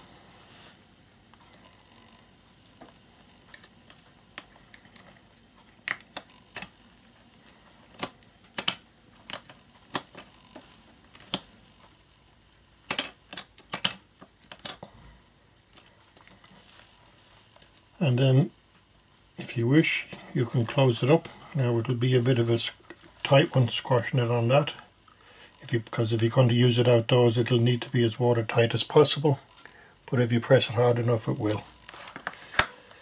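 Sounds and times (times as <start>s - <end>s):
plastic clicks and snaps: 7.9s - 10.2s, 12.8s - 14.9s.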